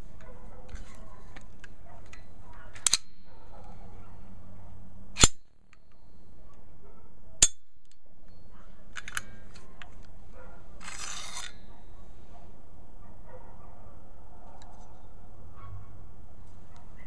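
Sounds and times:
magazine sliding scrape: 0:00.7 - 0:03.1, 0:09.0 - 0:10.1, 0:10.8 - 0:11.7
sharp metallic click: 0:02.8 - 0:03.2, 0:05.2 - 0:06.0, 0:09.0 - 0:09.4.

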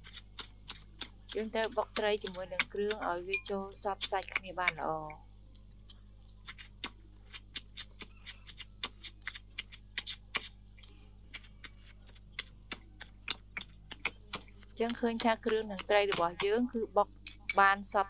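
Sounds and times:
pestle pounding in stone mortar: 0:14.0 - 0:16.7.

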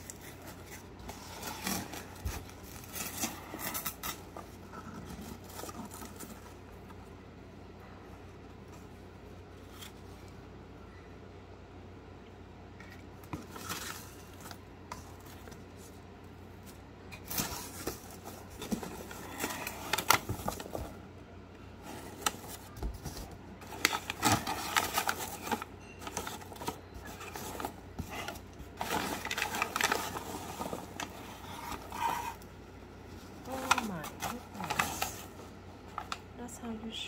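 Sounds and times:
cardboard and paper bag rustling: 0:00.0 - 0:07.0, 0:13.2 - 0:21.0, 0:21.8 - 0:32.5, 0:33.1 - 0:36.8.

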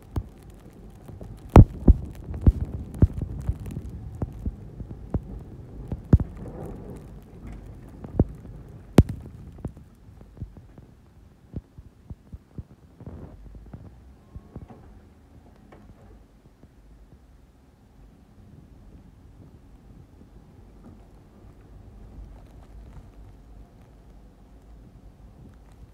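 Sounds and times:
truck plowing snow: 0:00.1 - 0:09.8
sharp knocks and thumps: 0:01.5 - 0:06.8.

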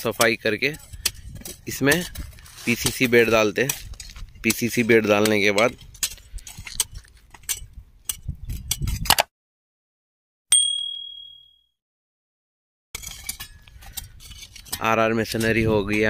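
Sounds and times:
hoe chopping and scraping earth: 0:00.0 - 0:09.3, 0:13.0 - 0:16.0
notification bell ding: 0:10.5 - 0:11.7.

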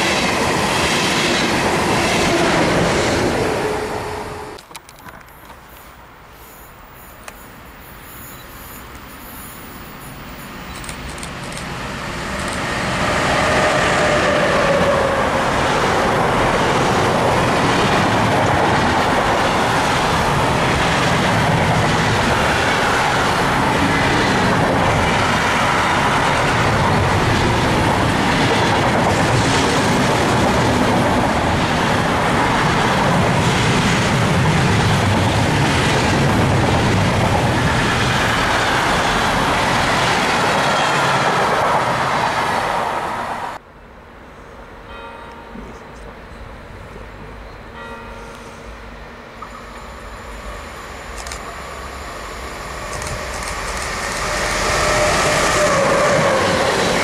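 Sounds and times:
freight train passing: 0:00.0 - 0:57.0
falling whine: 0:48.2 - 0:57.0.

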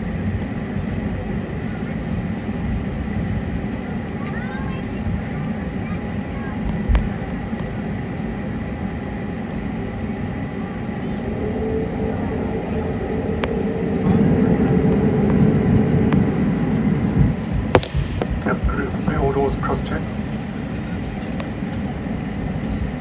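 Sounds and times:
aircraft cabin rumble: 0:00.0 - 0:23.0
lower whine: 0:00.0 - 0:23.0
faint high whine: 0:08.9 - 0:20.2.

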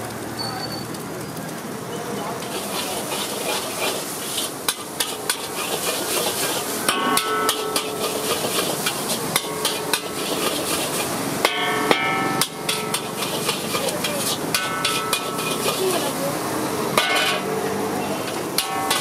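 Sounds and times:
eggs sizzling: 0:00.0 - 0:19.0
gas burner: 0:02.2 - 0:19.0
metal spatula scraping a wok: 0:02.4 - 0:16.4, 0:17.0 - 0:17.6, 0:18.2 - 0:19.0.

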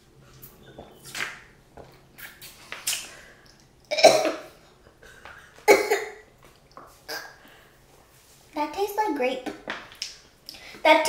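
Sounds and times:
woman coughing: 0:03.9 - 0:04.4, 0:05.7 - 0:06.2.

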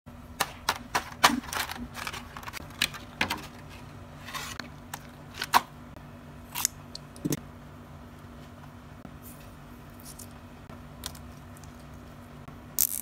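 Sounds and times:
plastic blister tray crackling: 0:00.4 - 0:05.7.

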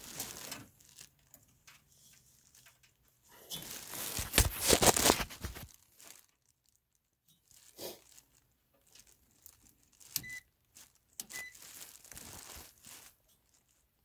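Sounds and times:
short high beeps: 0:11.3 - 0:11.5.

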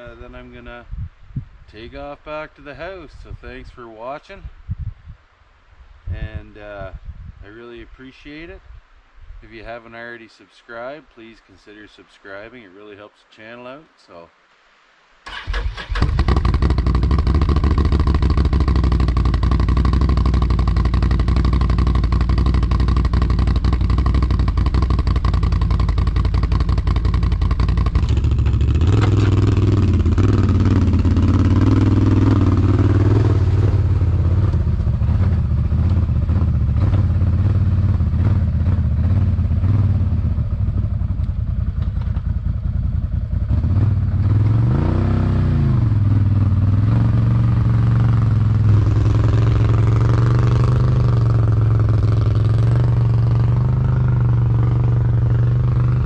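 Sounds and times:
atv engine running: 0:15.5 - 0:56.0.

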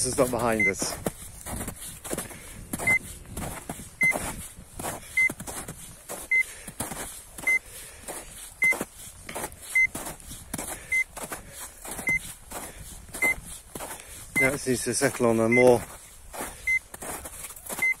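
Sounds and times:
footsteps crunching in snow: 0:00.0 - 0:18.0
short high beeps: 0:00.5 - 0:00.8, 0:02.8 - 0:03.1, 0:06.3 - 0:06.5, 0:07.4 - 0:07.6, 0:09.7 - 0:10.0, 0:12.0 - 0:12.2, 0:14.4 - 0:14.6, 0:15.5 - 0:15.8, 0:16.7 - 0:16.9, 0:17.8 - 0:18.0.

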